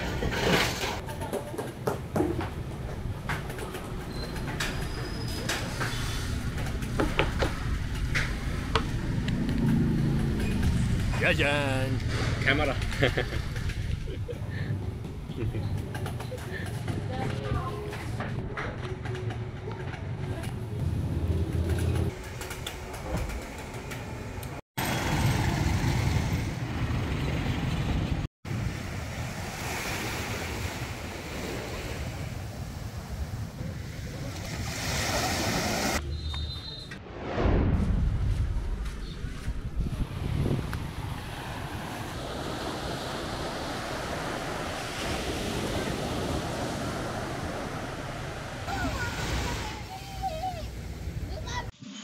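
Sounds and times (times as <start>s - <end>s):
motorbikes running: 6.4s - 16.8s
waves washing onto beach: 28.5s - 36.0s, 39.9s - 50.6s
wind buffeting the microphone: 37.4s - 48.0s.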